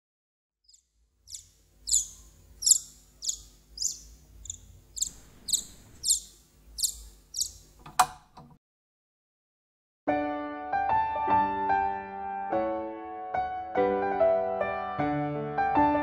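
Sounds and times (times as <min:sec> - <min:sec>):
chick cheeping: 0:00.7 - 0:07.7.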